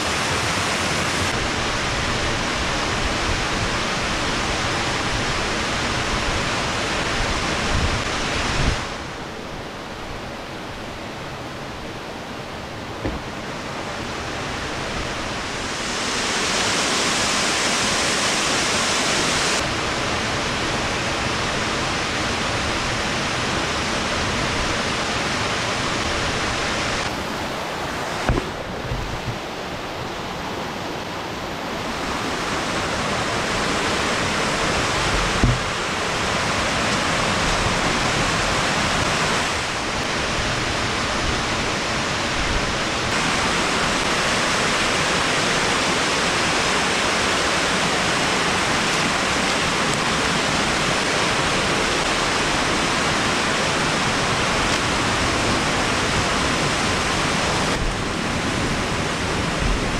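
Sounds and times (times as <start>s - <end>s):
waterfall rushing: 0.0s - 59.9s
brief knocks: 13.0s - 13.3s, 35.4s - 35.7s.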